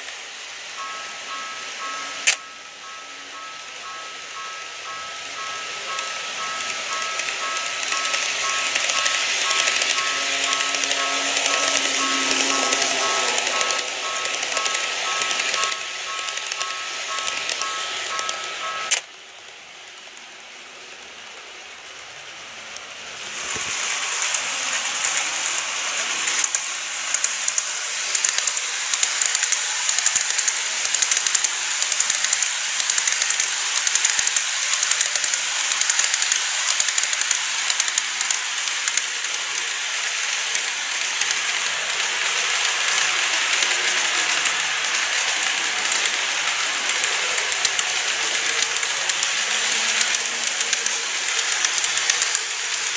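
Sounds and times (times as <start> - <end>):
model trains whirring: 0.0 - 52.9
level-crossing bell: 0.2 - 19.1, 23.6 - 32.8, 37.4 - 52.9
wheels clicking over rail joints: 3.8 - 20.4, 22.7 - 52.9.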